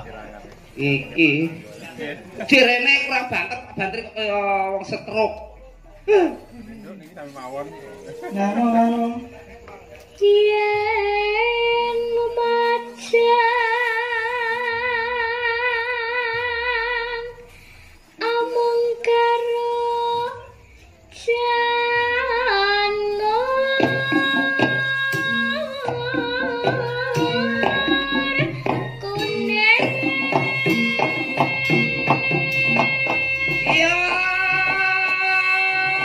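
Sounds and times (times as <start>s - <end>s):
girl singing into microphone: 10.1s - 17.5s, 18.2s - 36.0s.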